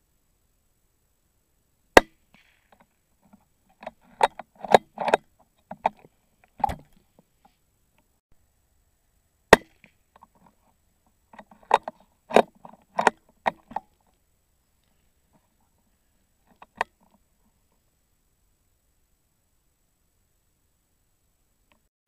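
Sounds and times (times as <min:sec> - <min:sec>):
rifle bolt clicks and knocks: 0:02.0 - 0:07.0, 0:11.3 - 0:14.2.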